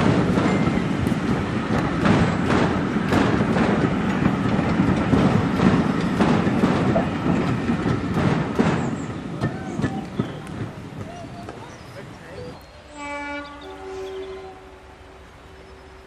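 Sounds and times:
train wheels clattering over rail joints: 0:00.0 - 0:12.8.

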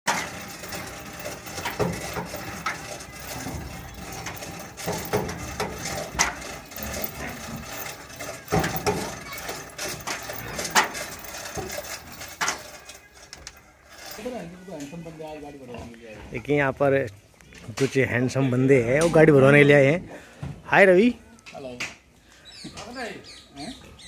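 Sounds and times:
knocks and clanks: 0:00.1 - 0:14.2
yard background noise: 0:00.1 - 0:24.0.

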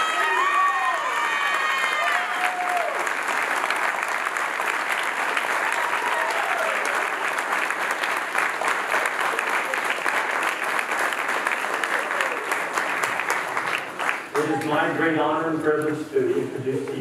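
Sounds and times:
person cheering: 0:00.0 - 0:03.0, 0:05.7 - 0:07.0
guests applauding: 0:00.0 - 0:15.3.

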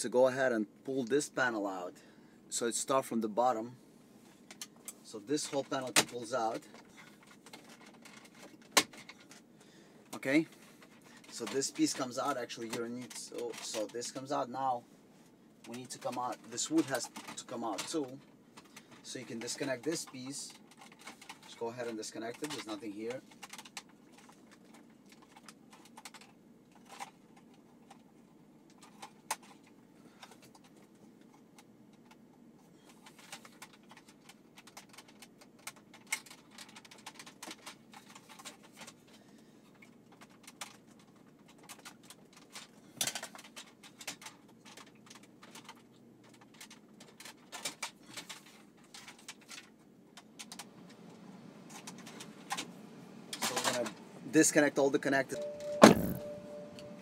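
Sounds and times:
faint steady hum: 0:00.0 - 0:57.0
plastic clatter: 0:04.5 - 0:09.5, 0:15.6 - 0:28.0, 0:28.6 - 0:32.2, 0:32.9 - 0:51.1, 0:51.7 - 0:54.0
plastic clicks and rattles: 0:04.5 - 0:14.2, 0:15.6 - 0:54.0.

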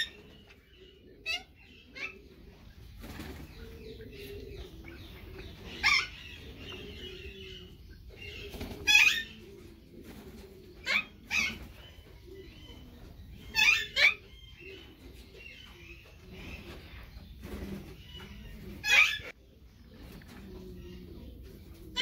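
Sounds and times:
parrots squawking: 0:01.2 - 0:02.2, 0:05.7 - 0:06.4, 0:08.8 - 0:09.4, 0:10.8 - 0:11.7, 0:13.5 - 0:14.3, 0:18.8 - 0:19.4.

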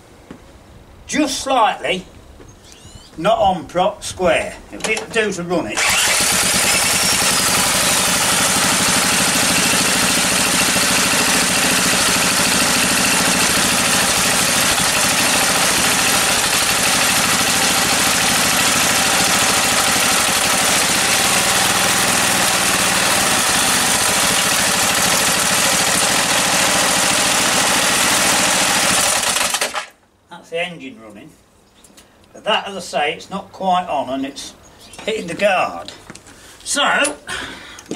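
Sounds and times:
small petrol engine running: 0:05.8 - 0:29.9.

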